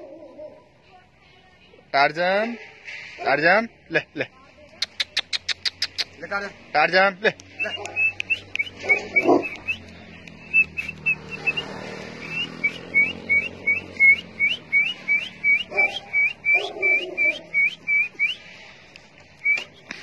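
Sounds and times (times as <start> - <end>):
high chirping whistles: 7.6 - 18.4, 19.4 - 19.9.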